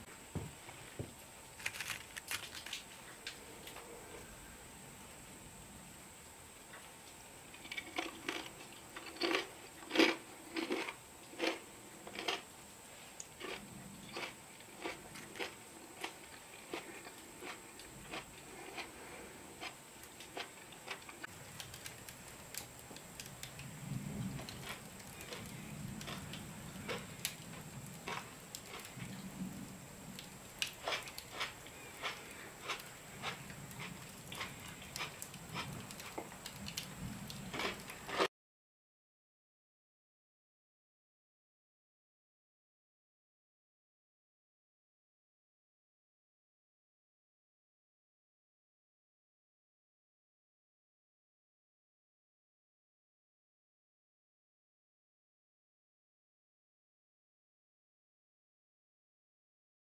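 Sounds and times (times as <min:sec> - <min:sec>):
fried snacks crunching: 0:01.5 - 0:02.9, 0:07.5 - 0:12.4, 0:13.2 - 0:19.0, 0:19.6 - 0:23.6, 0:24.4 - 0:29.0, 0:30.5 - 0:38.3.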